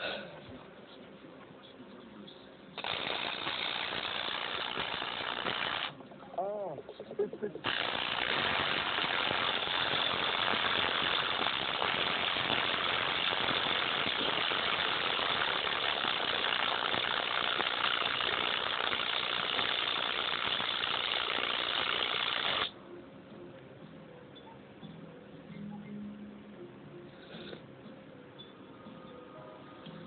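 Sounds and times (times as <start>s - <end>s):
heavily distorted headphone noise: 2.8s - 22.8s.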